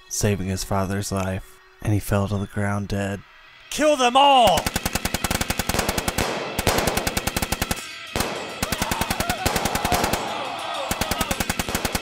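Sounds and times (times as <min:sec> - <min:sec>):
automatic gunfire: 0:04.5 - 0:12.0.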